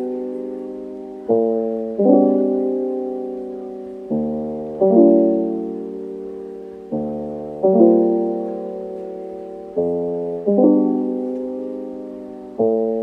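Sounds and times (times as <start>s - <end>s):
slow piano chords: 0.0s - 13.0s.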